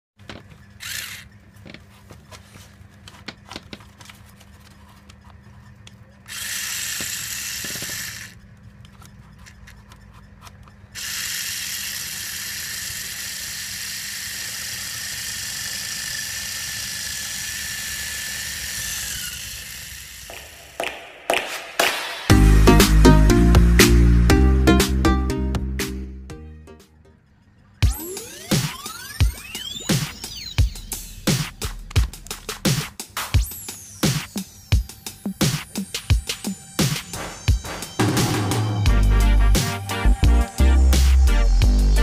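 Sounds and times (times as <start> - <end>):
small electric motor whirring: 0.8 - 1.4, 6.2 - 8.4, 10.9 - 20.6, 27.9 - 32.6.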